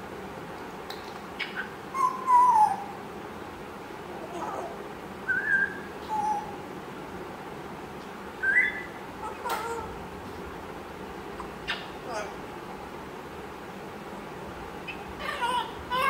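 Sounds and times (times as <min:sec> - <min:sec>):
parrot whistles and squeaky calls: 0:01.4 - 0:02.9, 0:08.4 - 0:09.8.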